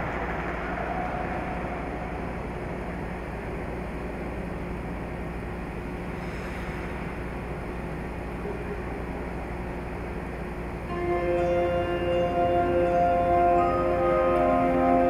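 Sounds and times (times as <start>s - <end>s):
ice rink hum: 0.0s - 10.3s
music with long held tones: 10.8s - 15.0s.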